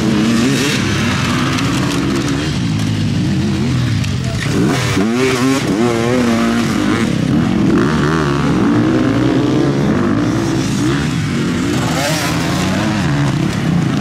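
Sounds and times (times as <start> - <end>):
motorcycle engines running: 0.0 - 14.0.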